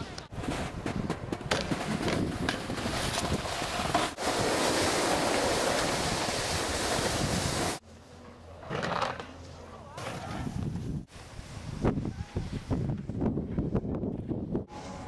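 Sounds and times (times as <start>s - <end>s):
snowboard sliding over snow: 1.7s - 7.8s
wind buffeting microphone: 4.2s - 7.8s, 10.4s - 15.0s.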